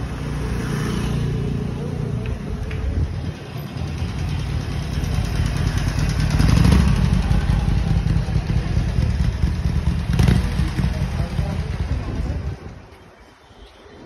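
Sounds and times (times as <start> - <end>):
street traffic: 0.0 - 14.0
motorcycle engine running: 3.1 - 12.8.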